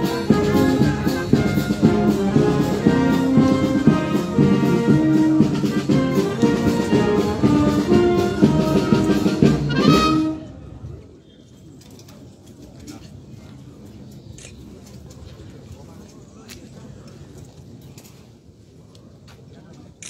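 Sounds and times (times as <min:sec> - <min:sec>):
drums keeping the beat: 0:00.0 - 0:10.1
brass band playing: 0:00.0 - 0:10.8.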